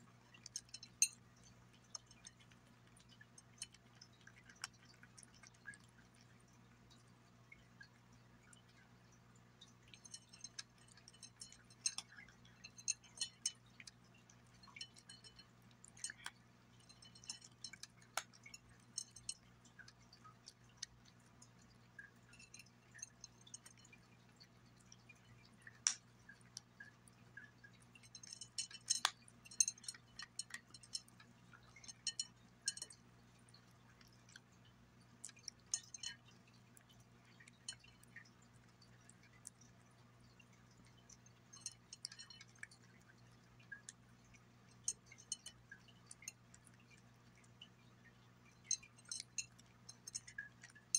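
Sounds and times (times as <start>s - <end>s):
cat crunching dry food: 0.1s - 8.8s, 9.7s - 39.8s
clinks against glass plate: 0.3s - 1.2s, 3.2s - 5.4s, 9.9s - 19.9s, 22.0s - 24.0s, 27.8s - 33.0s, 35.2s - 36.3s, 41.4s - 42.8s, 44.7s - 46.4s, 48.6s - 50.9s.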